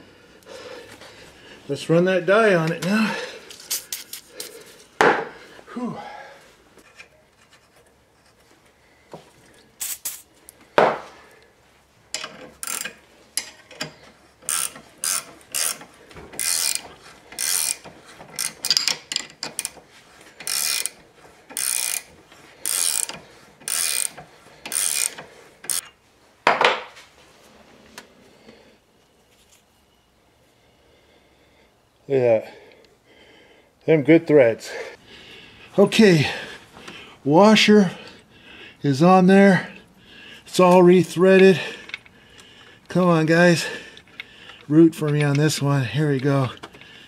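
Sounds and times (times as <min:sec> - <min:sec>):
threading die rasping and clicking: 0:12.2 - 0:19.8, 0:20.4 - 0:25.9.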